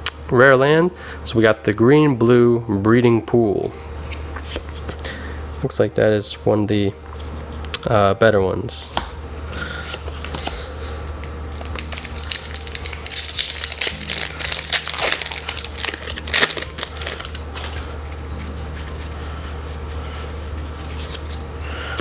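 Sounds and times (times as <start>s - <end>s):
steady low hum: 0.0s - 22.0s
foil wrapper crinkling and tearing: 11.5s - 21.9s.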